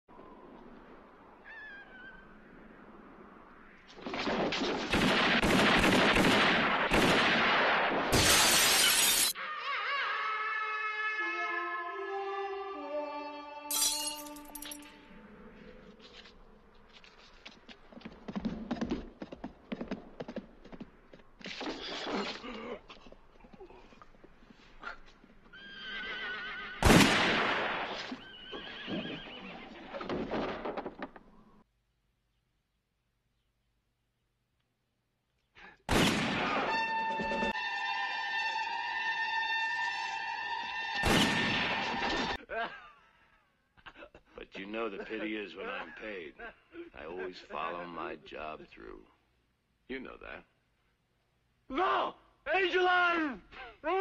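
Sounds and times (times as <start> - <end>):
echoing gunshots: 4.0 - 8.8, 26.8 - 28.1, 35.9 - 36.8
glass window smashing: 8.2 - 9.4
music: 10.1 - 15.1, 37.0 - 41.1
horse whinnying: 25.5 - 26.8, 28.1 - 30.1.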